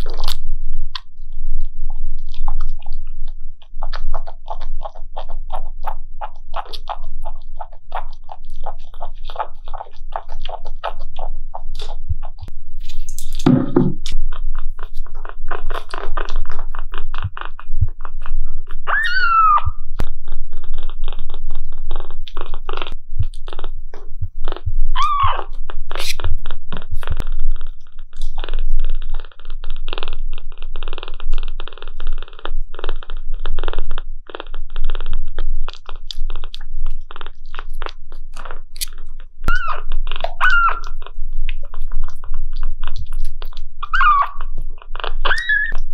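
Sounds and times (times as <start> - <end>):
kitten suckling wet clicks: 0.0 - 13.4, 24.4 - 45.9
kitten meowing: 18.9 - 19.8, 25.0 - 25.5, 39.5 - 41.0, 43.8 - 44.5, 45.2 - 45.8.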